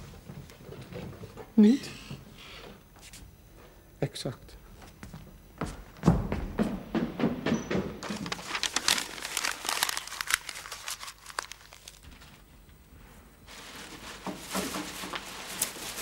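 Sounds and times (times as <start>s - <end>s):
paper crinkling and rustling: 8.0s - 12.5s, 13.5s - 16.0s.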